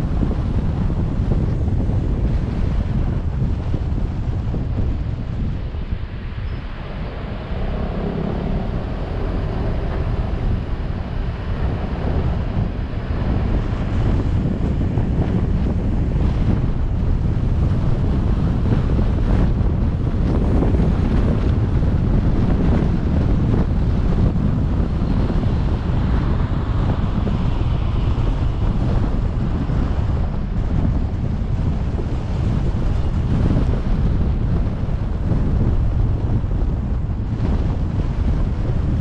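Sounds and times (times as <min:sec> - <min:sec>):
car road and tyre noise: 0:00.0 - 0:39.0
wind buffeting the microphone: 0:00.0 - 0:39.0.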